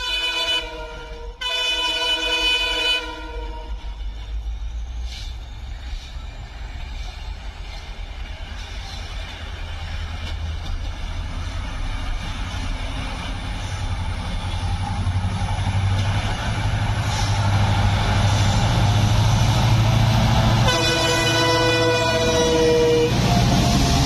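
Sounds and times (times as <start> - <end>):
train horn blast: 0.0 - 4.0, 20.5 - 24.0
diesel locomotive engine drone: 0.0 - 24.0.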